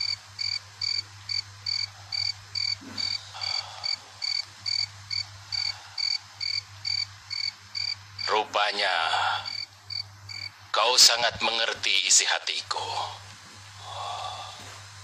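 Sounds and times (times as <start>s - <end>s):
cricket-like chirping: 0.0s - 8.4s, 9.4s - 10.6s
steady low hum: 0.0s - 15.0s.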